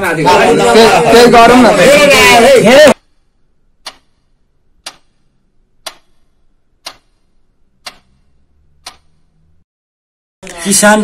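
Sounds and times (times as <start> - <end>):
clock ticking: 2.9 - 9.6.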